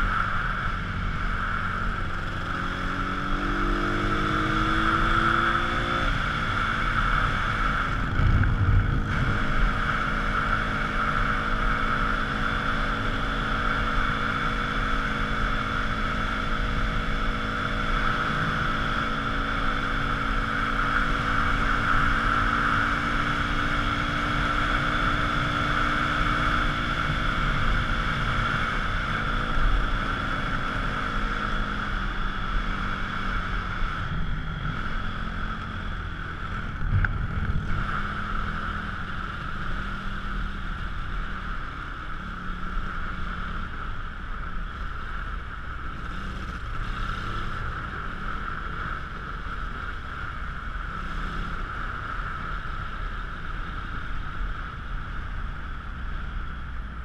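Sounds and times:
wind rushing past microphone: 4.2s - 10.8s.

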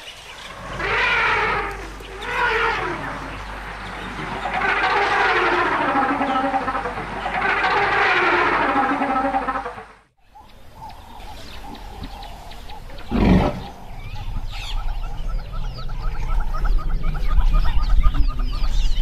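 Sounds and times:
birds chirping: 0.0s - 19.0s
low rumbling noise: 0.0s - 19.0s
short loud animal call: 0.5s - 9.6s.

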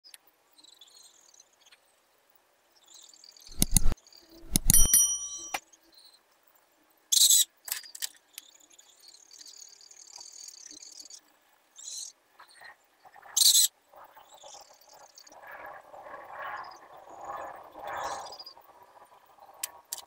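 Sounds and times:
marker scratching on paper: 3.5s - 4.9s.

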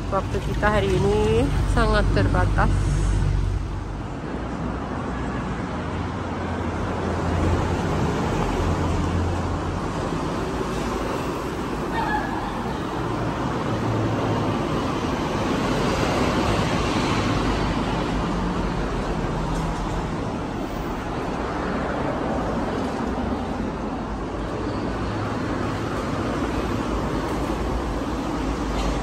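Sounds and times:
road traffic: 0.0s - 29.0s.

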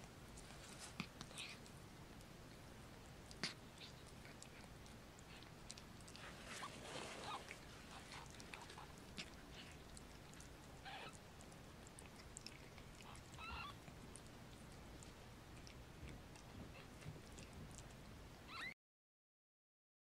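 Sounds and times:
kittens licking and suckling: 0.0s - 18.7s
kittens squeaking: 6.4s - 9.8s, 10.8s - 11.5s, 12.6s - 13.9s, 18.4s - 18.8s.

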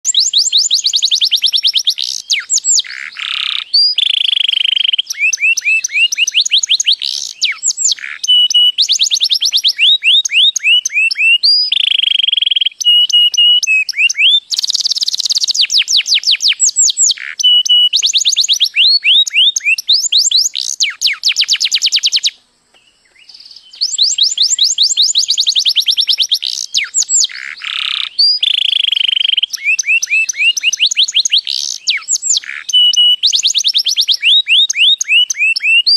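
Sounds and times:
canary singing trills: 0.0s - 35.9s.

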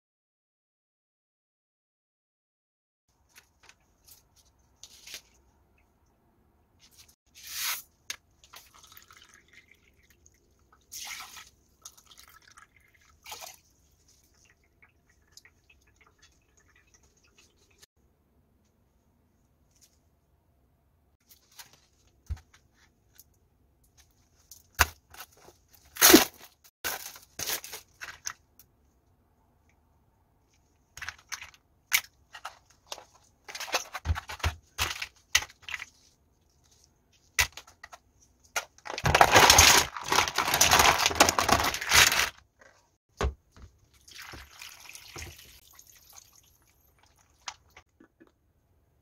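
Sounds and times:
plastic film crinkling and tearing: 25.1s - 28.3s, 38.6s - 42.5s.

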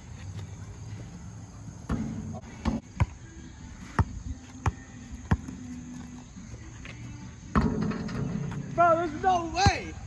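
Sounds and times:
basketball bouncing on concrete: 3.9s - 5.6s.

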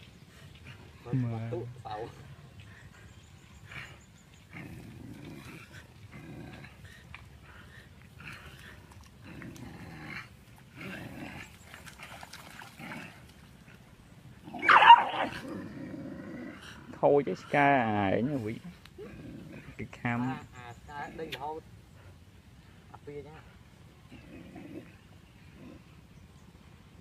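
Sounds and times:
dogs growling: 3.0s - 20.5s, 23.9s - 26.2s.

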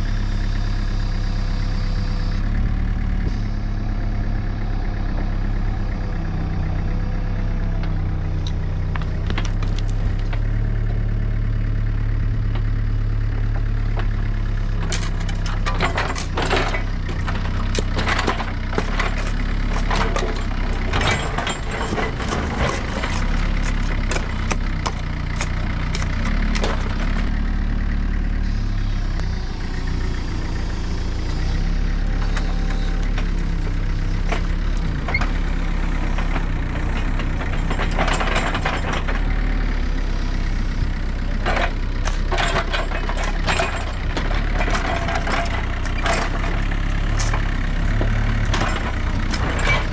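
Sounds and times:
mini excavator diesel engine running: 0.0s - 49.9s
quick clanks and scrapes: 14.8s - 27.3s, 36.0s - 39.2s, 48.3s - 49.9s.

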